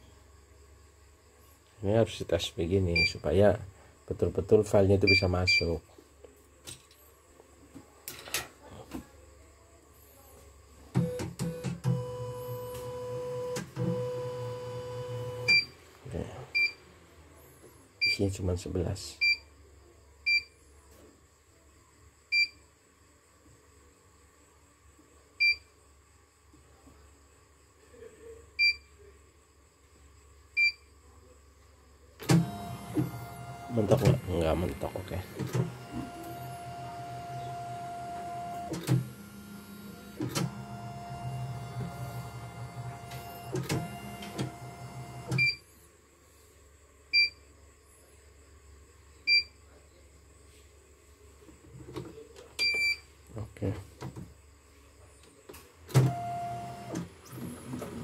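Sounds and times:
machine motor whirring: 0:32.3 - 0:45.4.

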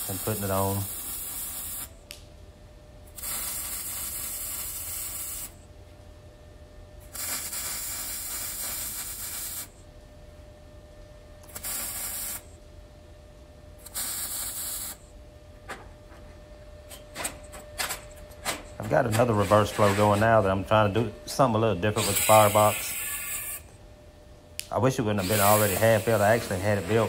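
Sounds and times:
welder arc sizzling: 0:00.0 - 0:02.0, 0:03.1 - 0:05.6, 0:07.0 - 0:09.7, 0:11.4 - 0:12.5, 0:13.8 - 0:15.0, 0:18.9 - 0:23.7, 0:25.0 - 0:27.0.

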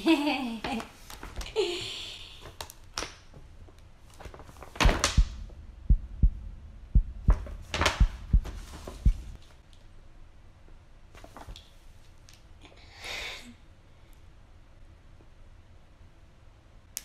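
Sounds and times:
paper bag rustling: 0:00.6 - 0:01.6, 0:04.0 - 0:05.2, 0:07.6 - 0:09.5
dull thumps: 0:04.8 - 0:09.4.

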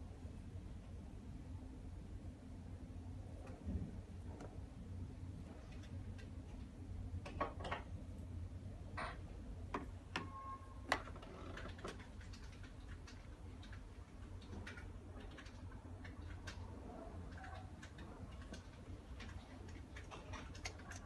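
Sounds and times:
low steady hum: 0:00.0 - 0:21.0
short beep: 0:10.3 - 0:10.8.

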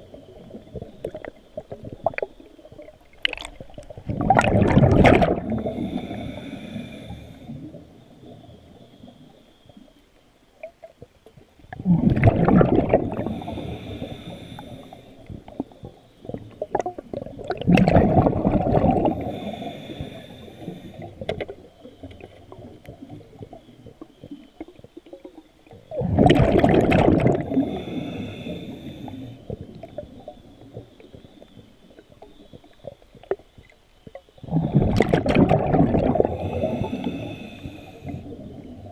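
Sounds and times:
exhaled bubbles rushing: 0:00.0 - 0:06.5, 0:11.7 - 0:14.4, 0:15.3 - 0:21.5, 0:25.9 - 0:31.1, 0:34.4 - 0:38.9.

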